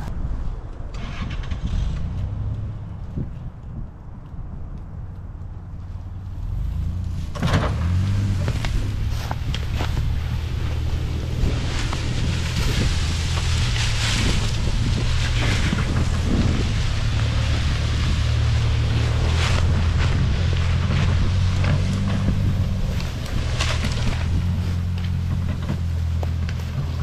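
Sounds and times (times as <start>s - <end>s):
truck engine running: 0.7s - 27.0s
log scraping over leaves and brush: 6.2s - 27.0s.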